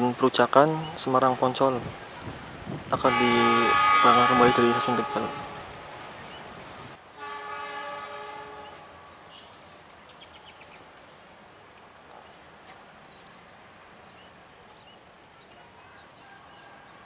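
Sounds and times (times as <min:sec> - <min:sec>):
diesel locomotive horn blast: 0:03.0 - 0:06.2, 0:07.1 - 0:09.3.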